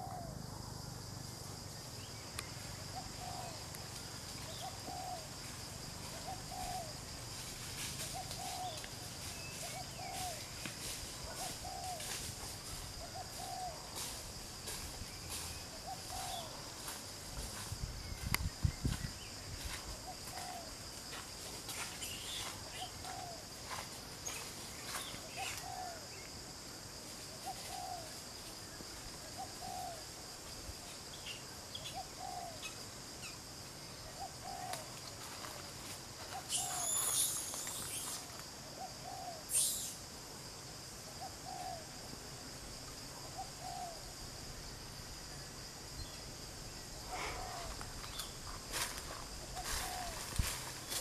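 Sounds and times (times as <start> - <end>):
bird low hooting: 0.0 - 0.5, 2.9 - 3.7, 4.5 - 5.4, 6.1 - 7.0, 8.1 - 8.8, 11.2 - 12.1, 13.0 - 13.8, 15.7 - 16.6, 25.2 - 26.2, 27.4 - 28.1, 29.4 - 30.0, 31.8 - 32.8, 34.1 - 34.9, 38.8 - 40.0, 43.2 - 44.1, 47.0 - 48.3, 49.6 - 50.4
high insect hum: 0.0 - 51.0
shrill bird calls: 36.4 - 38.2, 39.1 - 40.0.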